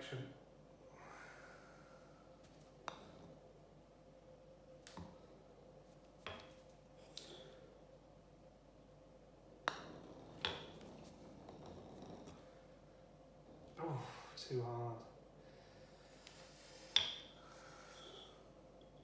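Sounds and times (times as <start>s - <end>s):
faint steady hum: 0.0s - 19.0s
balls knocking on tiled floor: 9.6s - 12.4s
putter striking golf balls: 9.6s - 12.5s.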